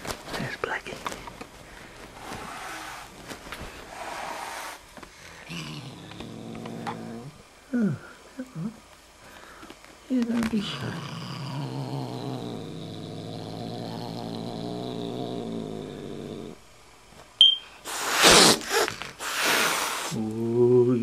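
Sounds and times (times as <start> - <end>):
cat growling: 3.9 - 7.4, 10.5 - 16.6
cat hissing loudly: 17.9 - 20.2.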